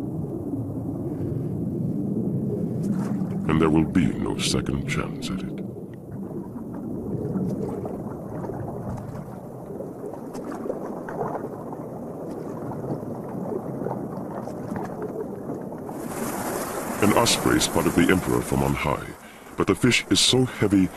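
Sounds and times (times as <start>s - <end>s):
muffled water churning and splashing: 0.0s - 20.9s
bird wings beating in water: 15.9s - 18.4s.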